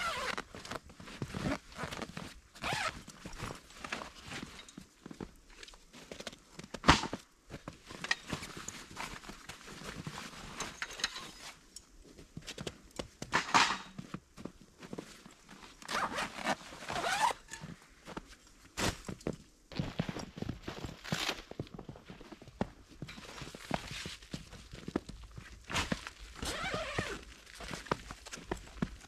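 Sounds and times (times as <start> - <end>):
nylon bag rustling: 0.0 - 5.0, 14.9 - 17.8, 25.7 - 28.5.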